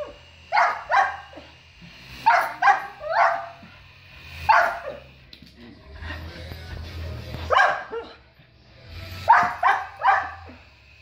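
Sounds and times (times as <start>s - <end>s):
small dog barking: 0.5s - 1.3s, 2.3s - 3.6s, 7.5s - 8.1s, 9.3s - 10.5s.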